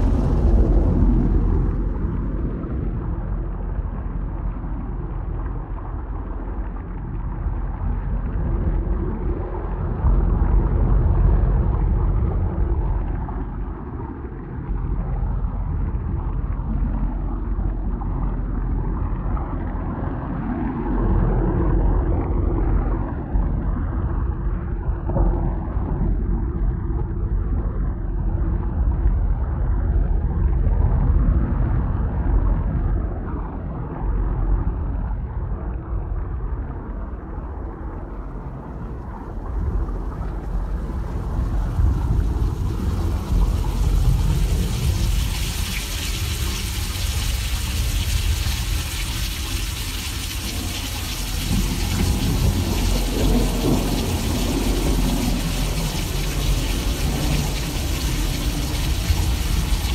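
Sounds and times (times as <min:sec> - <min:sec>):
rolling thunder rumble: 0:00.0 - 0:05.2, 0:38.1 - 0:59.9.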